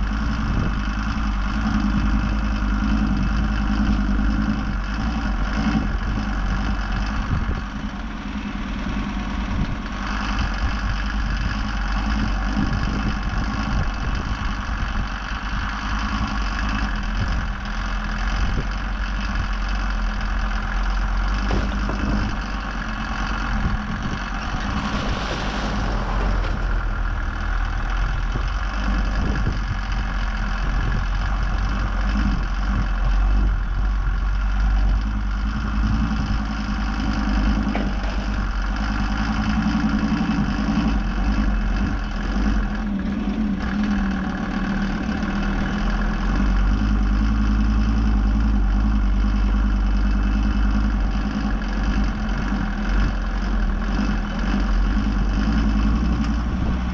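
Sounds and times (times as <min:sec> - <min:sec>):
vehicle engine droning: 0:00.0 - 0:56.9.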